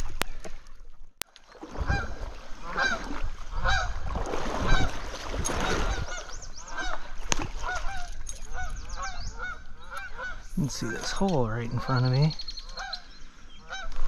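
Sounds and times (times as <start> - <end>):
goose honking: 3.6 - 3.9, 7.6 - 14.0.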